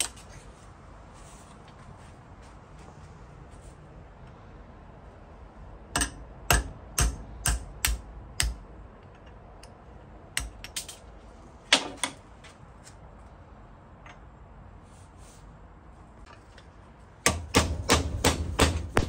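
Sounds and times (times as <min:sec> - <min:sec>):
hammer striking steel punch: 0:06.0 - 0:08.6, 0:17.2 - 0:19.0.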